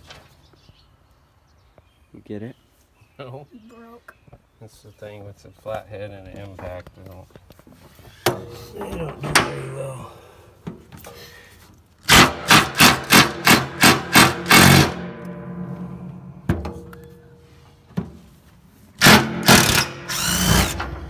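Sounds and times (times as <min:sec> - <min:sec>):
impact driver rattling: 0:12.1 - 0:15.4, 0:19.0 - 0:21.0.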